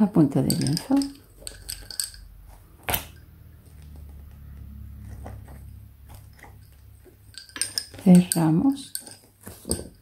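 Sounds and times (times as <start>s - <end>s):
lace bobbins clicking together: 0.0s - 4.6s.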